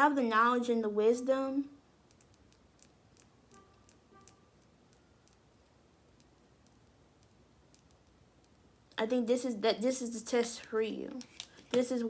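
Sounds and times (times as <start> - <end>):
faint ticks and clicks: 2.0 - 9.0.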